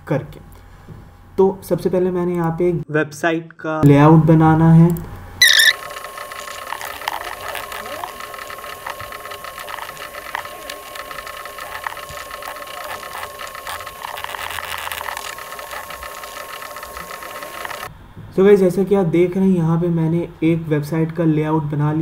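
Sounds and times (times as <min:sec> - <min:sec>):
keyboard and mouse clicking: 0:04.9 - 0:17.9.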